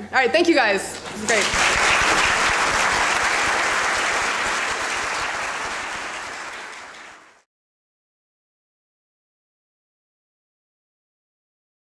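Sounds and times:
audience applauding: 0:00.9 - 0:07.5.

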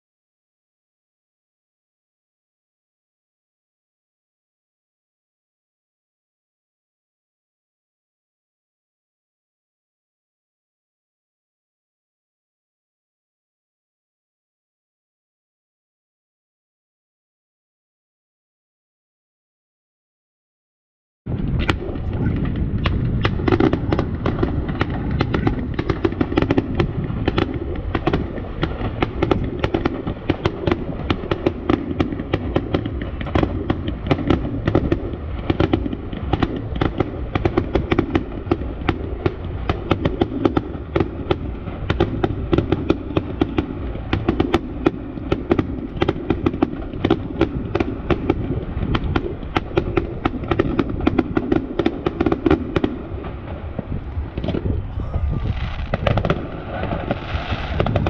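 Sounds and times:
fireworks bangs and pops: 0:21.3 - 0:58.0
steady low rumble: 0:21.3 - 0:58.0.

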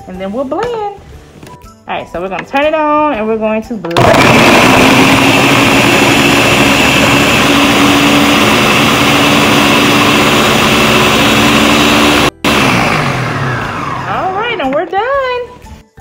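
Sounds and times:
blender motor whirring: 0:04.0 - 0:14.6.

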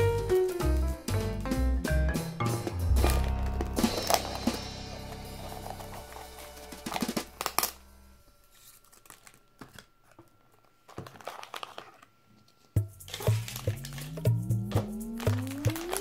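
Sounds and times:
background music: 0:00.0 - 0:08.3, 0:12.8 - 0:16.0
tissue paper crinkling: 0:08.4 - 0:12.2, 0:13.0 - 0:14.2, 0:15.0 - 0:16.0.

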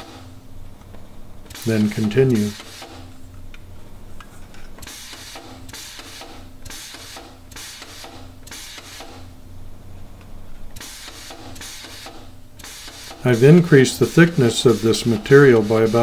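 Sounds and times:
sheet metal shrinker strokes: 0:10.8 - 0:16.0.

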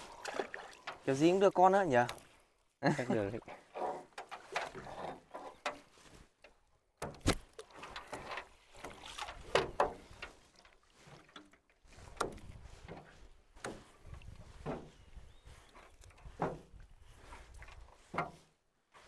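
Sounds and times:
water splashing in a stream: 0:00.0 - 0:02.5, 0:03.3 - 0:14.9.

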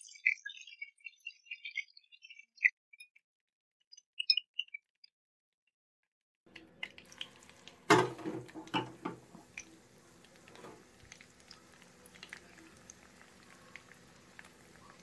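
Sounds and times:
oil spitting and crackling: 0:06.5 - 0:15.0
prawn frying in hot oil: 0:06.5 - 0:15.0.

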